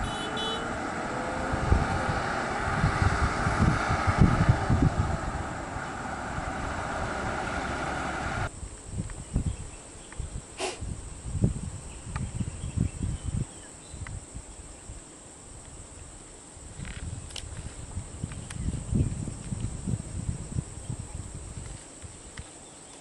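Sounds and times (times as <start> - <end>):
diesel bus engine running: 0.0 - 8.5
wind on microphone: 1.0 - 15.0, 15.6 - 22.5.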